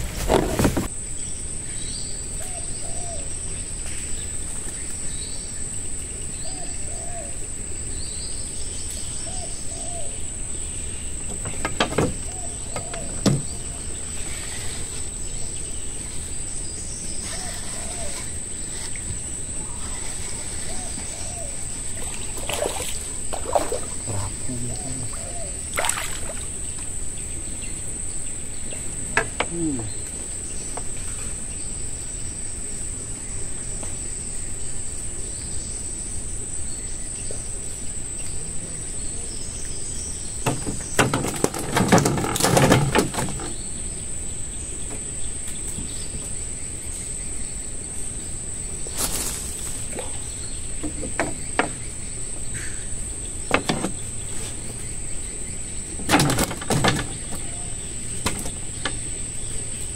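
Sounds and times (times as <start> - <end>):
insects droning: 0.0 - 59.9
fishing gear knocking in wooden boat: 11.3 - 13.6.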